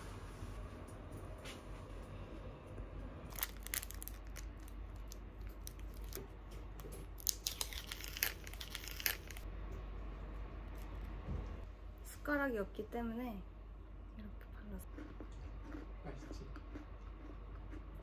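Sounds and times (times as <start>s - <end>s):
foil lid peeling and crinkling: 3.3s - 4.7s, 7.2s - 9.4s.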